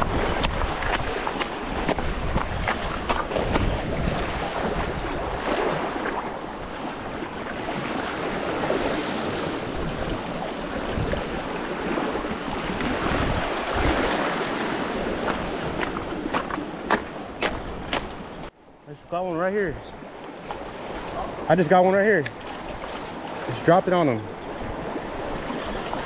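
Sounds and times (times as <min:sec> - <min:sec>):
surf splashing over rocks: 0:00.0 - 0:18.3
wind on microphone: 0:00.0 - 0:18.5.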